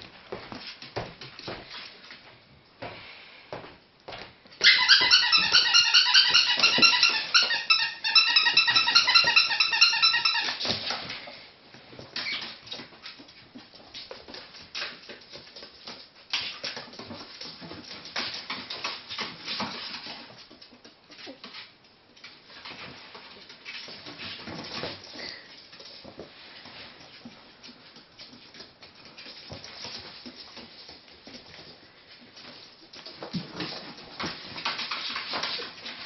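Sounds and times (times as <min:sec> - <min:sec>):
ferret squealing: 0:04.6 - 0:10.6.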